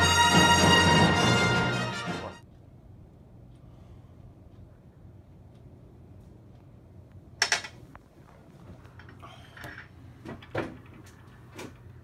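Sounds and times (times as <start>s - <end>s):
sharp clatter on stone counter: 7.4s - 7.8s.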